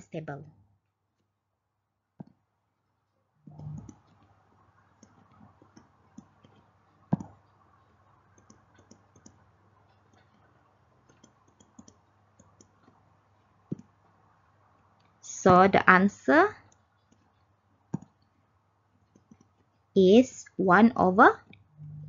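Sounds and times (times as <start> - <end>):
faint steady hum: 0.0 - 22.0
light clicks and taps: 5.0 - 7.6, 8.3 - 13.0.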